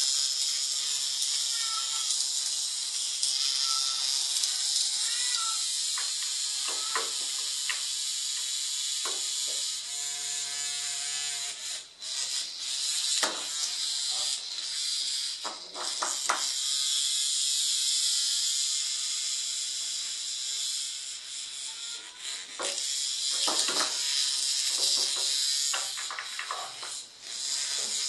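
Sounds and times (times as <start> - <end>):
vibrating toy buzzing on tiles: 0.0 - 28.0.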